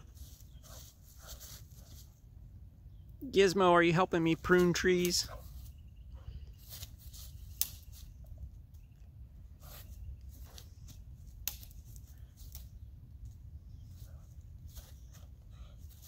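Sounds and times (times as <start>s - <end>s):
twigs snapping and crackling: 6.7s - 8.2s, 10.4s - 13.4s.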